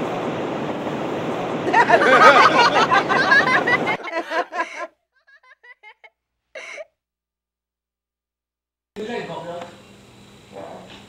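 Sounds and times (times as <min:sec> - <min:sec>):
surf: 0:00.0 - 0:04.8
wind: 0:00.0 - 0:04.9
woman laughing: 0:01.7 - 0:06.9.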